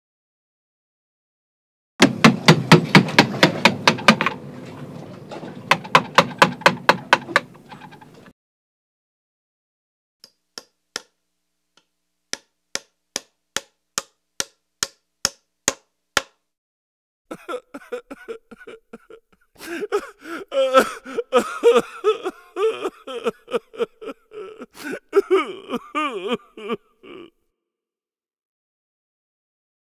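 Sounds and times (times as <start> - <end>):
hammer striking nail: 2.0 - 4.3, 5.7 - 7.5, 10.2 - 11.2, 12.3 - 16.4
person's cartoonish wavering cries: 17.3 - 27.4.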